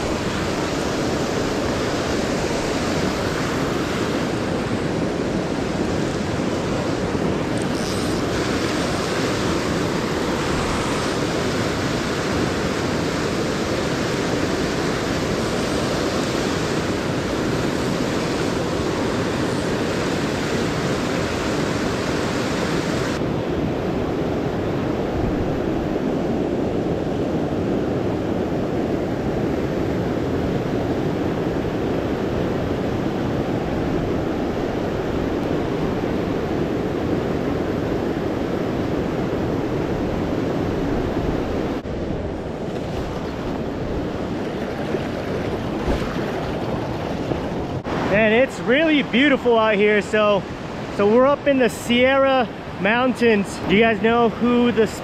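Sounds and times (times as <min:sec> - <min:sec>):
river rushing over rocks: 0:41.0 - 0:55.0.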